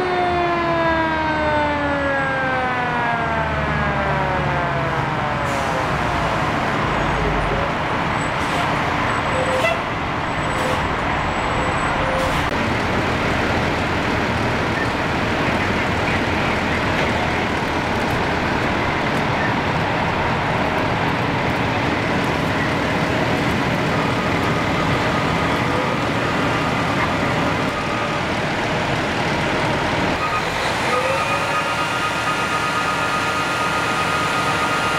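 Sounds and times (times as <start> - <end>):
siren winding down: 0.0 - 5.8, 30.2 - 34.9
diesel engines rumbling: 0.0 - 34.9.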